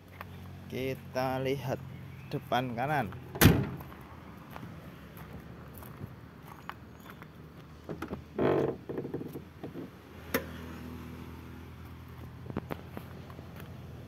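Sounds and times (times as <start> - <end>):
car door latch clicking: 3.4 - 3.8.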